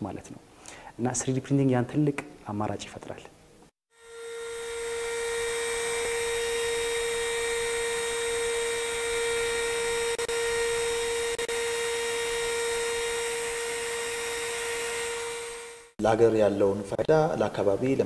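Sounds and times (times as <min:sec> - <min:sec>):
electric spindle motor whine: 0:04.0 - 0:16.0.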